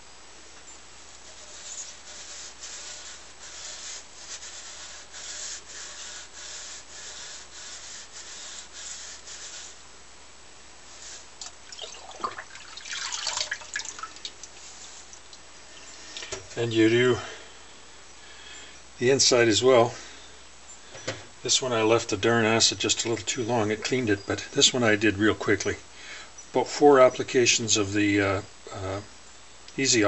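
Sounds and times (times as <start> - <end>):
steel wool scrubbing metal: 1.2 - 9.8
water dripping and splashing: 11.4 - 16.4.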